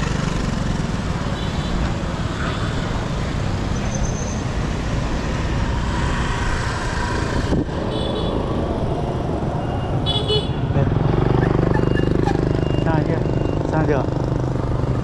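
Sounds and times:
motorbikes passing: 0.0s - 15.0s
street traffic noise: 0.0s - 15.0s
high beep: 11.8s - 13.7s.

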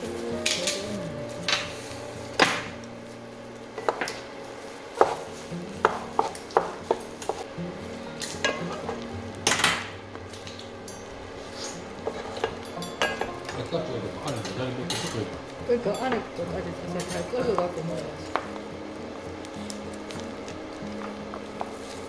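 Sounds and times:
spatula scraping frying pan: 11.4s - 13.4s.

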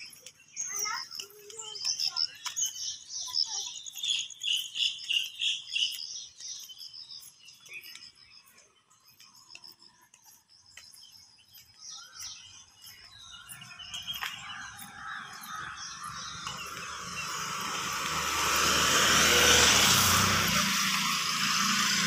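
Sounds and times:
birds chirping and calling: 0.0s - 22.0s
approaching road vehicle: 12.4s - 22.0s.

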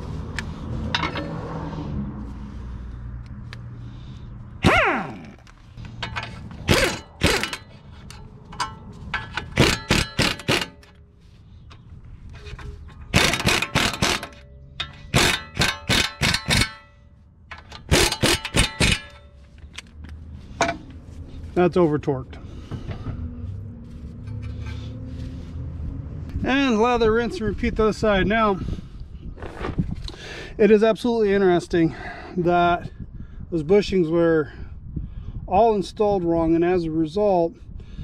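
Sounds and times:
metallic clanks of tools: 0.9s - 1.4s, 5.8s - 11.0s, 12.4s - 19.9s.

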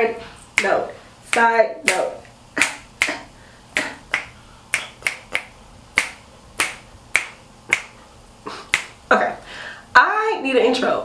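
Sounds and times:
fingers snapping: 1.3s - 3.2s, 3.8s - 8.0s, 8.7s - 9.0s.

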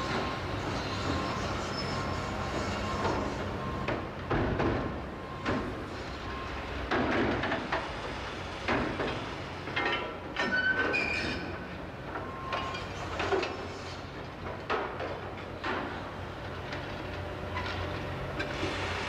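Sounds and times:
high metallic screech: 0.6s - 3.4s.

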